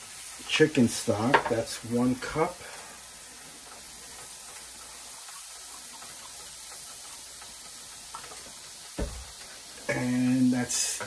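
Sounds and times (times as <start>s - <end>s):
stock hissing in hot pan: 0.0s - 11.0s.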